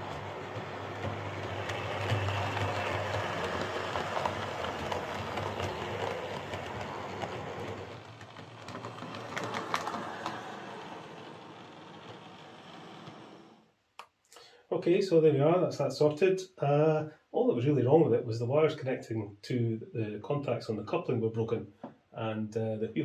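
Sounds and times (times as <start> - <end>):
model train wheels rattling: 0.0 - 13.6.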